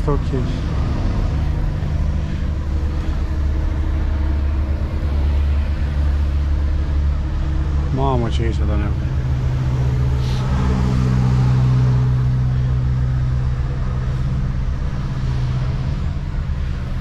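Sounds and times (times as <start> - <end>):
truck diesel engine running: 0.0 - 17.0.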